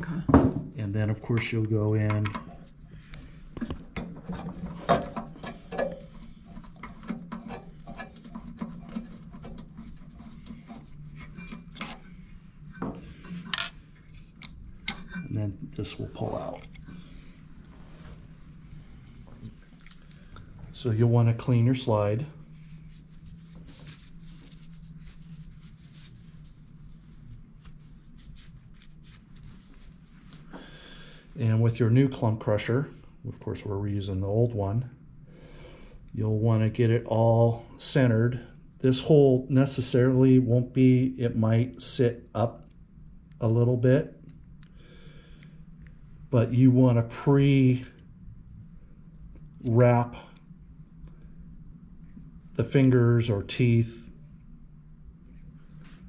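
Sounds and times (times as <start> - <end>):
steady low hum: 0.0 - 56.0
cloth rubbing metal part: 4.2 - 16.8, 20.9 - 30.3.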